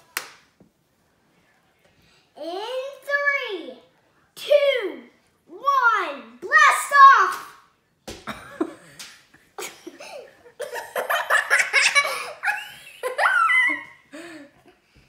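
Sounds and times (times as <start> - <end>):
young boy laughing: 9.6 - 14.8.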